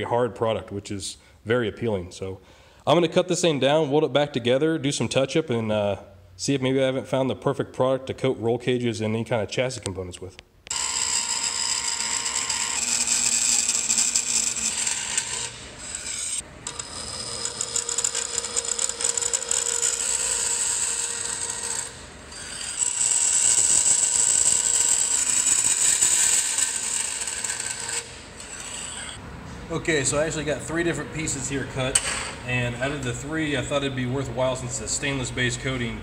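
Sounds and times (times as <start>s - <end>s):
bandsaw cutting steel: 10.7s - 29.2s.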